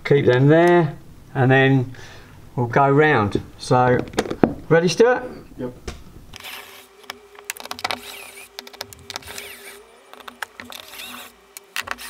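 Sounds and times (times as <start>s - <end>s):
battery drill running: 6.4s - 12.0s
screws clicking and rattling: 6.4s - 12.0s
screws squeaking: 6.4s - 12.0s.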